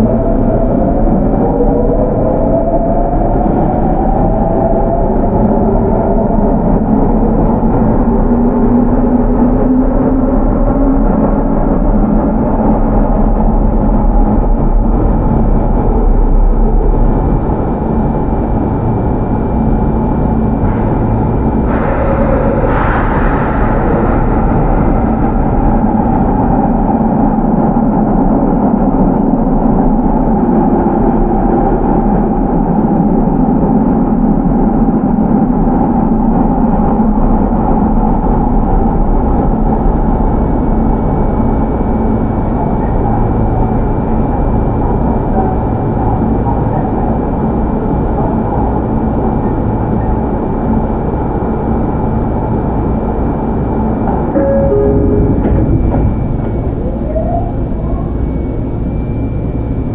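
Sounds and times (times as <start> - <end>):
train wheel and rail rumble: 0.0 - 59.9
faint steady high tone: 54.4 - 59.9.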